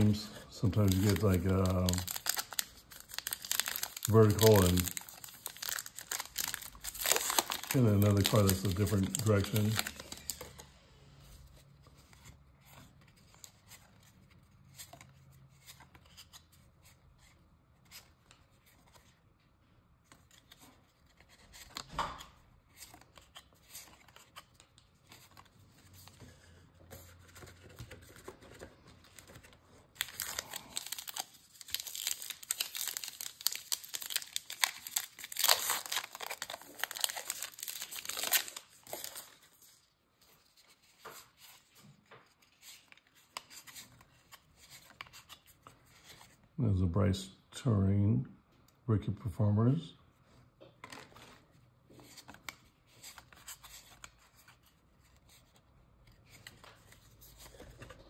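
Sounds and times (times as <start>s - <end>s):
card pack wrapper tearing and crinkling: 0.0s - 10.6s, 27.3s - 41.6s
cards rustling and clicking: 0.0s - 10.8s, 11.4s - 19.3s, 20.0s - 46.4s, 50.8s - 58.0s.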